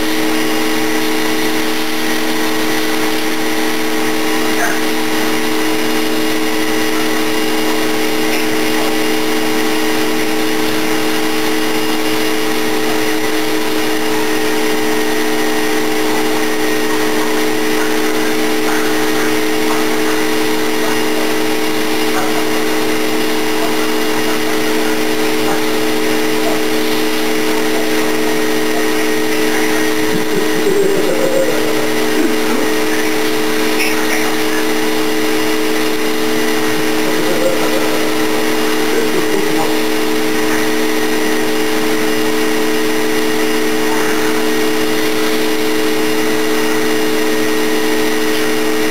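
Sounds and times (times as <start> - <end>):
vacuum cleaner motor hum: 0.0 - 48.9.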